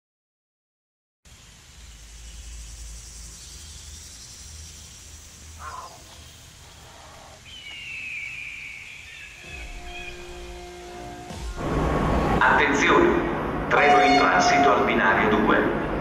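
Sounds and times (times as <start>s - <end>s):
high even hiss: 1.3s - 15.9s
steady low rumble: 9.3s - 16.0s
brief falling call: 13.8s - 14.9s.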